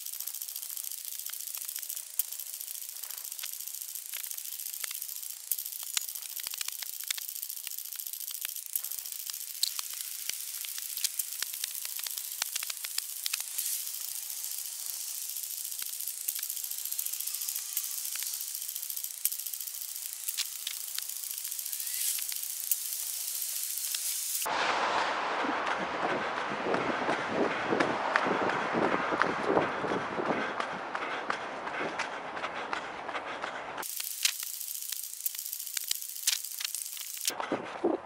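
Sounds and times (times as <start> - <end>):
steady hiss: 0.0 - 24.5, 33.8 - 37.3.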